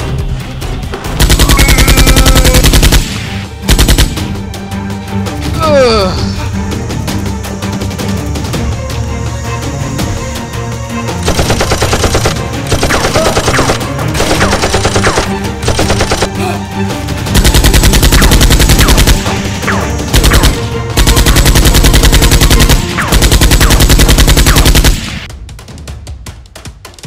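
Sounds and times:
background music: 0:00.0 - 0:27.0
machine-gun fire: 0:01.2 - 0:04.2, 0:11.2 - 0:16.3, 0:17.4 - 0:25.3.

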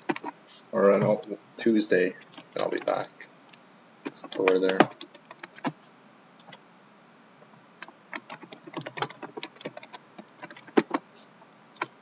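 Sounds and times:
keyboard keys clicking: 0:00.0 - 0:00.4, 0:02.2 - 0:03.1, 0:04.1 - 0:05.8, 0:08.1 - 0:11.0.

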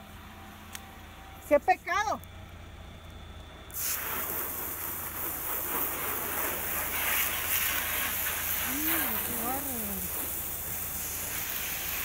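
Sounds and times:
water spraying onto car hood: 0:03.8 - 0:12.0.

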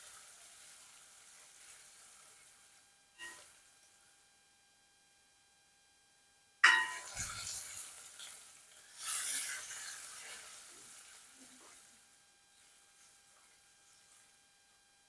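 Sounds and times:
onions sizzling in hot oil: 0:00.0 - 0:03.8, 0:06.6 - 0:14.2.

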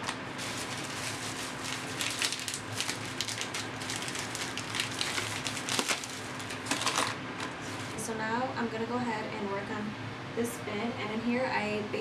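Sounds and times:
plastic bag crinkling: 0:00.0 - 0:08.0
faint steady hum: 0:00.0 - 0:12.0.

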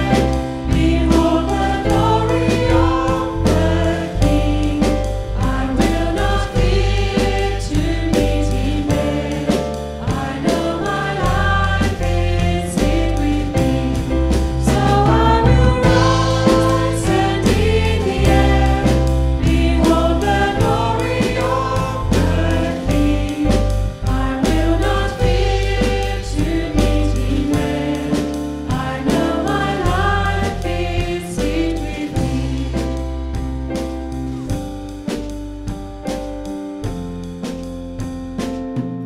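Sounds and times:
women singing: 0:00.0 - 0:32.8
congregation singing a hymn: 0:00.0 - 0:33.5
electric bass: 0:00.0 - 0:37.9
drum kit: 0:00.0 - 0:39.0.

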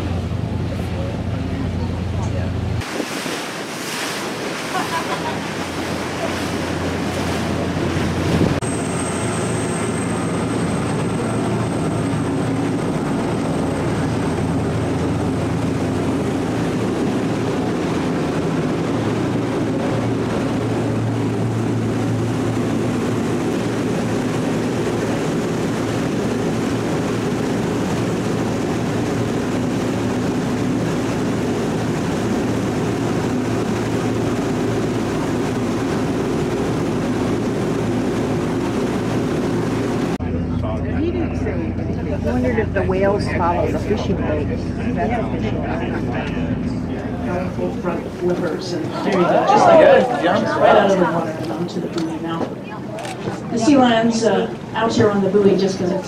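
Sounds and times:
wake water rushing: 0:00.0 - 0:40.3, 0:41.0 - 0:56.0
boat diesel engines droning: 0:00.0 - 0:56.0
wind on microphone: 0:02.8 - 0:08.7.

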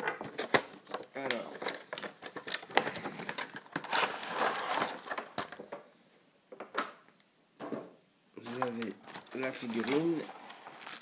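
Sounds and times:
plastic packaging crinkling: 0:00.2 - 0:05.6, 0:08.4 - 0:11.0.

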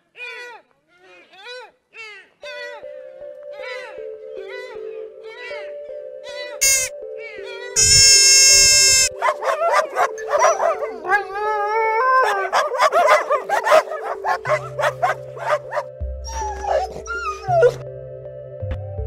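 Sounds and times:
puppy yipping and whimpering: 0:12.2 - 0:17.8
background music with bass line: 0:13.3 - 0:19.0.

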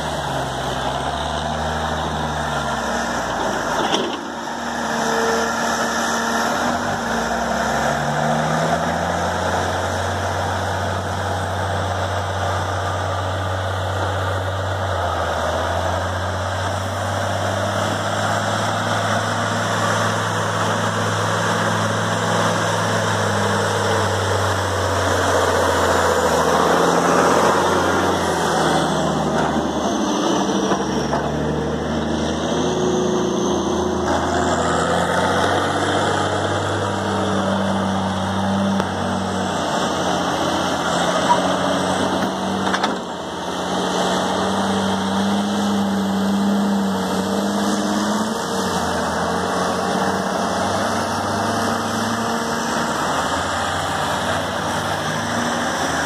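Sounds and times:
diesel truck engine passing: 0:00.0 - 0:56.0.

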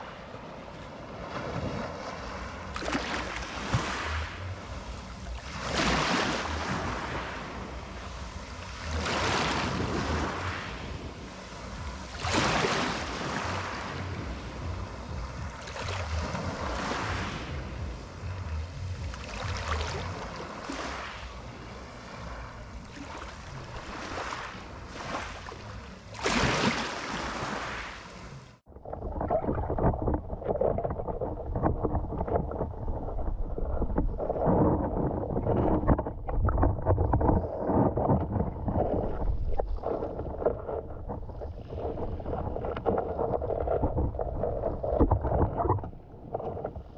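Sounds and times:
muffled underwater sea sound: 0:00.0 - 0:46.9
waves washing over pebble beach: 0:05.5 - 0:14.6, 0:15.6 - 0:17.7.

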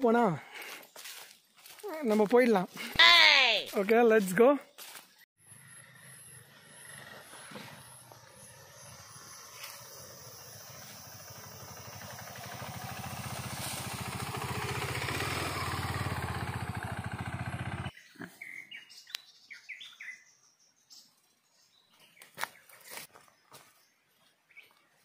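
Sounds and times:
motorcycle engine running: 0:05.4 - 0:17.9
bird chirps: 0:17.7 - 0:25.0.

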